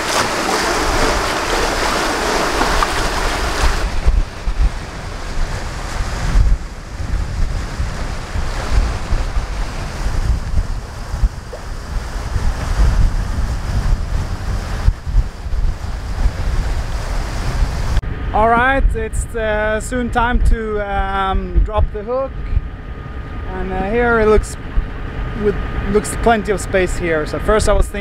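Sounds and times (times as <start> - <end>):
sea wash: 0.0 - 18.1
water rushing along a hull: 0.0 - 18.8, 22.0 - 28.0
wind buffeting the microphone: 0.0 - 28.0.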